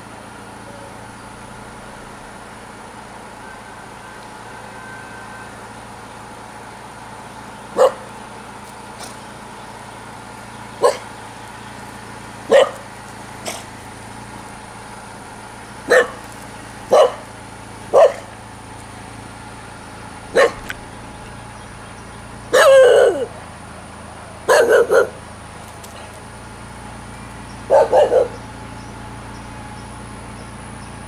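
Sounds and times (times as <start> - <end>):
puppy barking: 7.8 - 8.1, 10.8 - 11.1, 12.5 - 13.7, 15.9 - 16.2, 16.9 - 17.3, 17.9 - 18.3, 20.3 - 20.7, 22.5 - 23.3, 24.5 - 25.2, 27.7 - 28.4.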